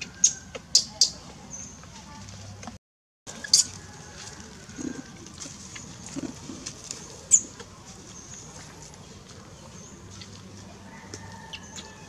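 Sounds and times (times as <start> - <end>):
rustling in dry leaves: 3.3 - 11.4.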